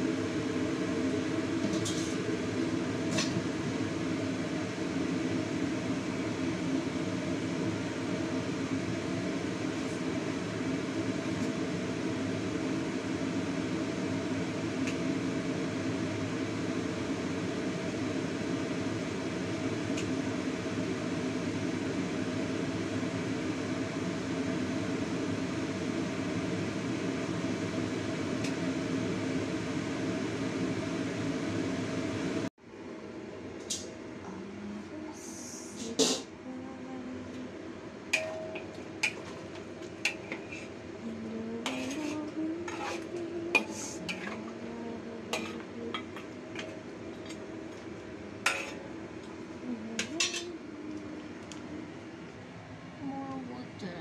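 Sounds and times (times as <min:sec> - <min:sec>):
stovetop rumbling hiss: 0:00.0 - 0:54.0
metal lid clink: 0:38.2 - 0:39.2.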